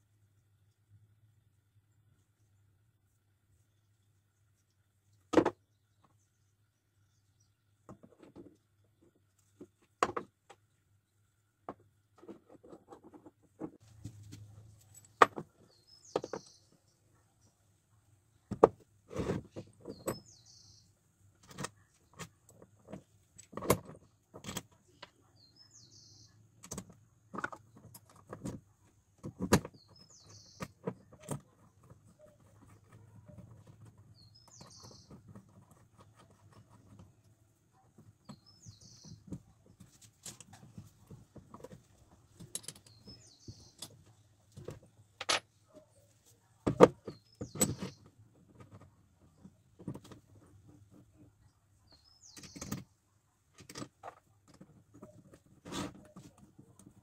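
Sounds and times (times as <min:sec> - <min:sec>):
steel parts clicking and knocking: 0:39.2 - 0:45.5.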